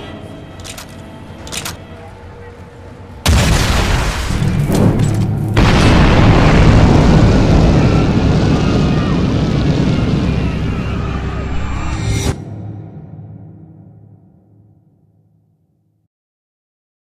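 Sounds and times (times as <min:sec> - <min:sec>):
rumble of burning: 0:03.2 - 0:12.3
explosion blasts: 0:03.2 - 0:12.4.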